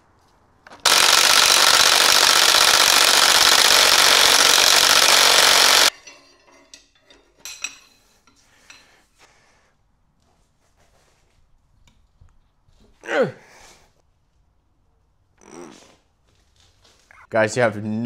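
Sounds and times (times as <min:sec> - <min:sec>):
impact wrench hammering: 0:00.8 - 0:05.9
tools knocking and clanking: 0:05.9 - 0:08.4.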